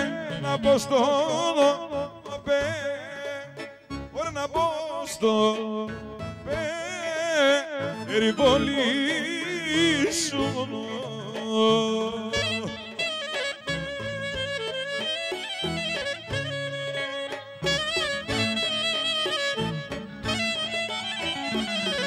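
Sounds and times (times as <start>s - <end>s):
man singing into a microphone: 0.0s - 15.9s
live band accompaniment: 0.0s - 22.0s.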